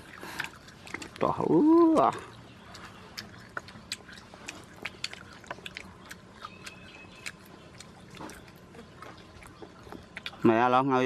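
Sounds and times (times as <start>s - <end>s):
crunching and crackling while chewing: 0.0s - 11.0s.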